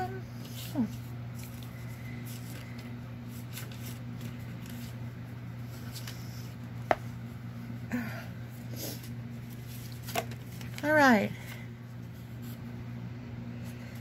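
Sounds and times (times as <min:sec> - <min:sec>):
steady low hum: 0:00.0 - 0:14.0
paper rustling: 0:00.4 - 0:06.6, 0:09.0 - 0:12.6.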